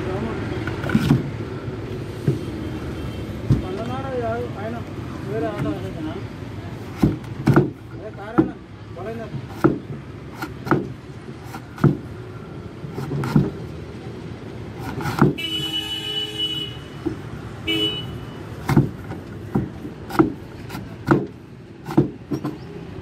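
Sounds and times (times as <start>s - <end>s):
knife chopping on wooden board: 6.9s - 8.6s, 9.4s - 12.0s, 13.0s - 13.6s, 14.8s - 15.4s, 18.6s - 22.6s
vehicle horn: 15.3s - 18.5s.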